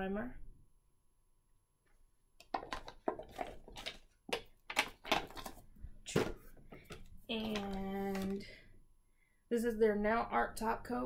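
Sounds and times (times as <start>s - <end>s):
rummaging through bottles: 2.4s - 8.6s.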